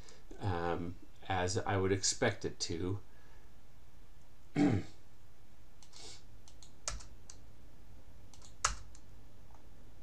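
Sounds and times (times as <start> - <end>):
computer keystrokes: 5.8 - 7.4, 8.3 - 9.1.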